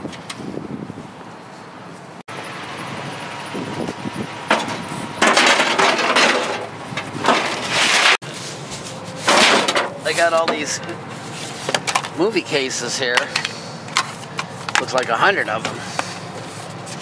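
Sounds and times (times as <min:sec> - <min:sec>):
metal scrap clattering: 0:04.5 - 0:08.2, 0:09.1 - 0:10.8
cardboard box scraping truck bed: 0:04.5 - 0:12.0.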